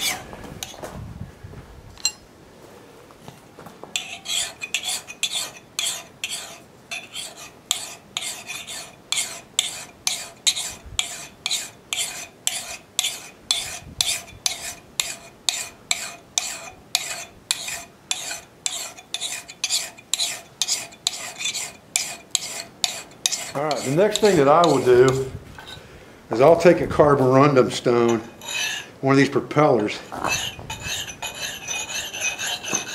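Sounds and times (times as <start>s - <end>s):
file rasping on axe steel: 0.0s - 0.8s, 4.0s - 25.8s, 28.1s - 29.0s, 30.0s - 32.9s
faint metallic ring: 2.0s - 2.3s.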